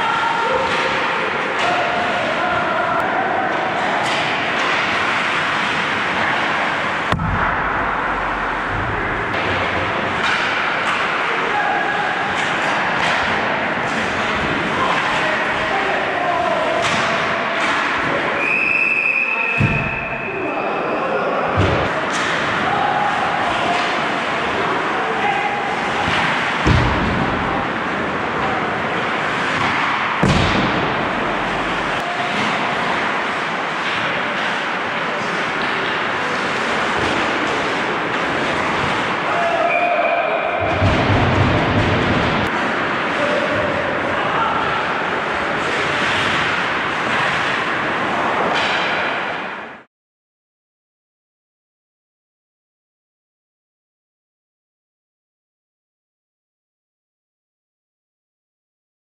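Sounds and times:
sharp crack: 4.0 - 11.3, 29.2 - 36.4
low rumble: 7.1 - 10.1, 30.3 - 32.0.

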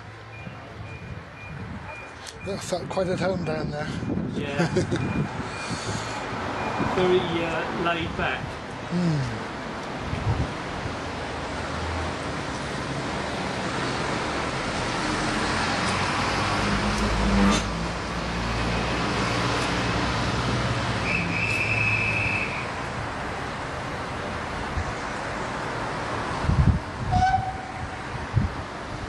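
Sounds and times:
whistle blast: 21.0 - 22.7.

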